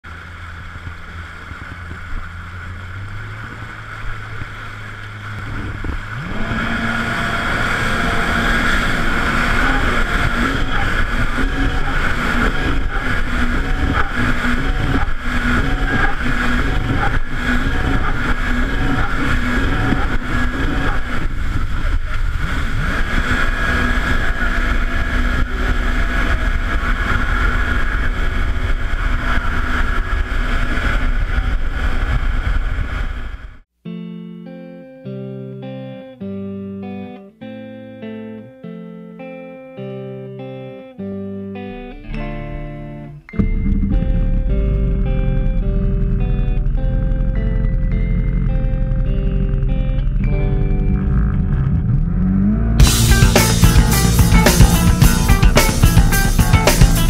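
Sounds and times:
motorboat engine: 0:00.0 - 0:33.6, 0:41.7 - 0:57.0
rushing water noise: 0:00.0 - 0:33.6, 0:52.8 - 0:57.0.

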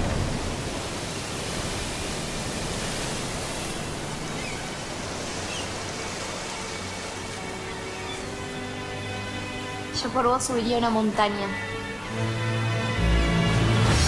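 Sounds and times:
ocean surf washing onto beach: 0:00.0 - 0:10.4.

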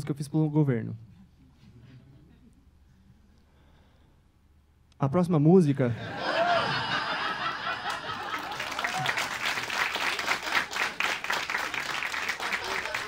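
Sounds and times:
audience laughing: 0:05.9 - 0:13.0
applause: 0:07.8 - 0:13.0.

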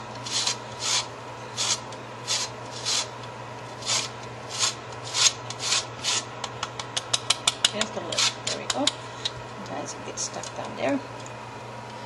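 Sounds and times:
lemon peel scraping on grater: 0:00.2 - 0:03.1, 0:03.8 - 0:06.2.

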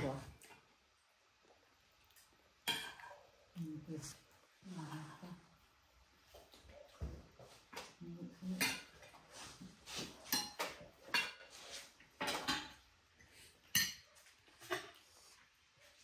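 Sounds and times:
dishes and cutlery clinking: 0:02.6 - 0:03.4, 0:07.7 - 0:12.9, 0:13.5 - 0:15.1.

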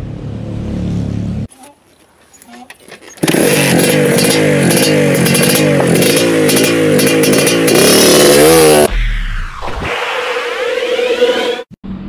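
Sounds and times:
two-stroke motorbike engine revving: 0:03.2 - 0:08.9.

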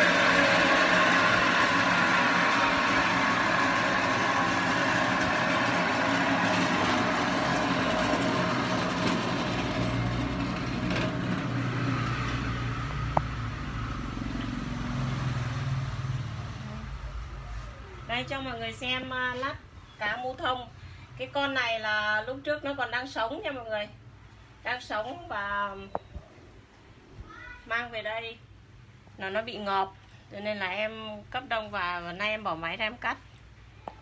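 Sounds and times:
cutting machine running: 0:00.0 - 0:14.4.

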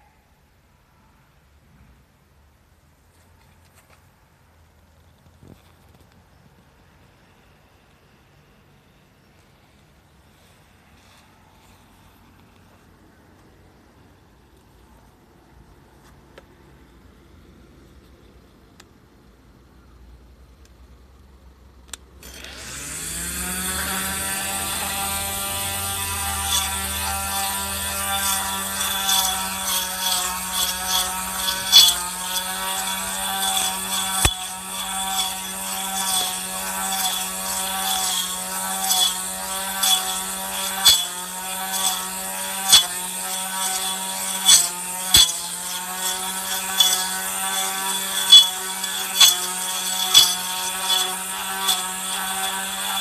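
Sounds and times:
blade striking weeds and soil: 0:22.2 - 0:53.0
trimmer motor whine: 0:22.2 - 0:53.0.

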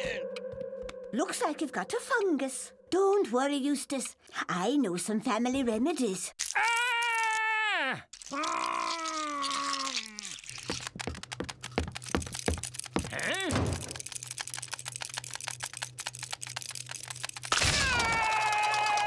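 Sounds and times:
claws clicking and snapping: 0:06.4 - 0:19.0.

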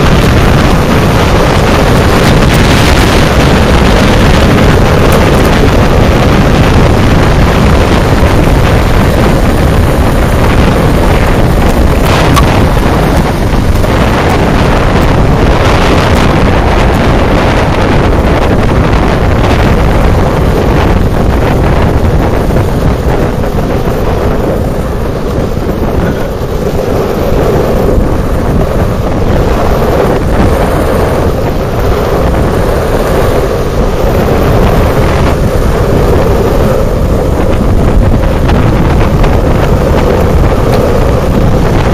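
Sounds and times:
skateboard wheels rolling on asphalt: 0:00.0 - 0:41.9
wind buffeting microphone: 0:00.0 - 0:41.9.

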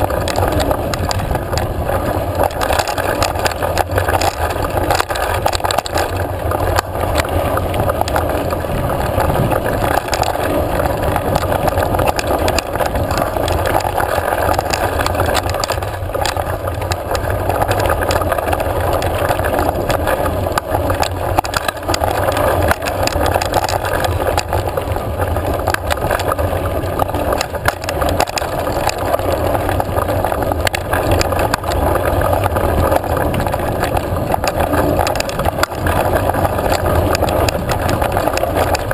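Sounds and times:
bike clicks and rattles: 0:00.0 - 0:38.9
tyres rumbling on dirt: 0:00.0 - 0:38.9.

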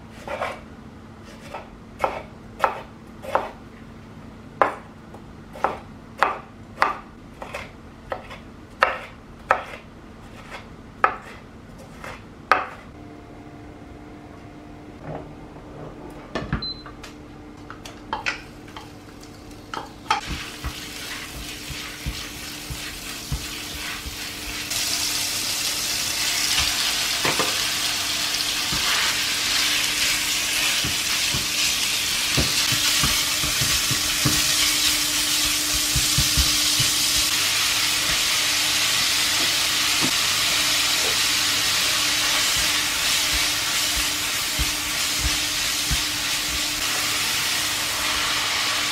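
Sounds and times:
spatula scraping pan: 0:20.2 - 0:24.7, 0:40.9 - 0:47.6
meat sizzling in oil: 0:20.2 - 0:48.9.

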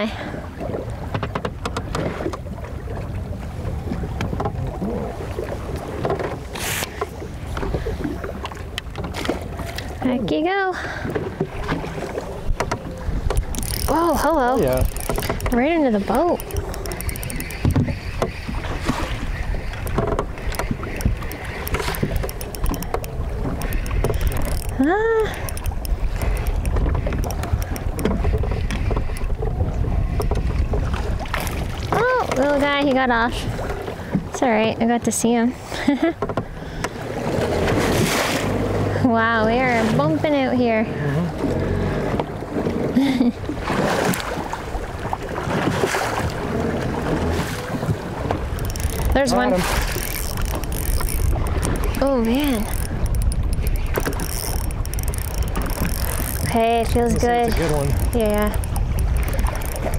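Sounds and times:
water slapping against metal hull: 0:00.0 - 0:59.9
wind on microphone: 0:11.0 - 0:35.6, 0:36.9 - 0:59.9
sharp clicks and knocks: 0:12.5 - 0:18.5, 0:19.6 - 0:29.4, 0:48.3 - 0:59.9.

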